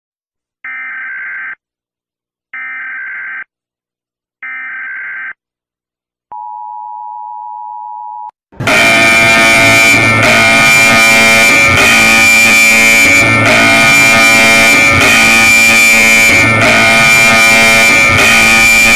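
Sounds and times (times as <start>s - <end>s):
steady attention tone: 7.8s - 18.9s
data-burst squawks: 8.6s - 18.9s
loud music with guitar: 13.0s - 15.5s.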